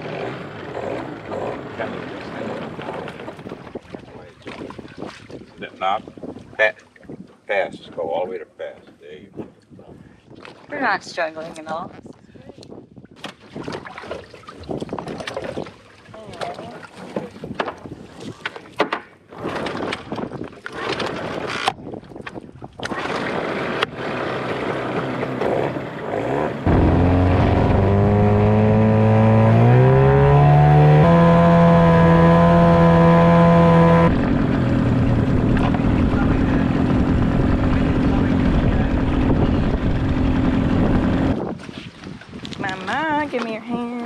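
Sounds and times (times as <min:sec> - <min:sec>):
outboard motor running: 0:00.0 - 0:04.8, 0:22.8 - 0:41.7
knocks and rattles in dinghy: 0:00.2 - 0:07.5, 0:13.0 - 0:28.4, 0:34.1 - 0:44.0.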